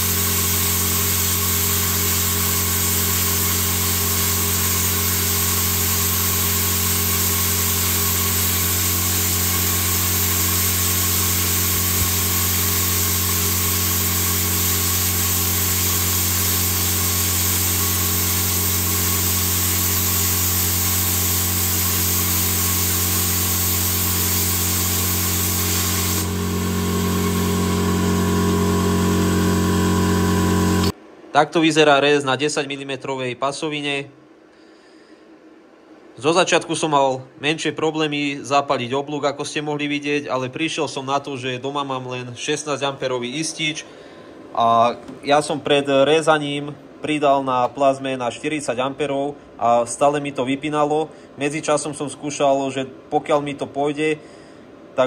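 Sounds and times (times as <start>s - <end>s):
plasma cutter hissing: 0.0s - 30.9s.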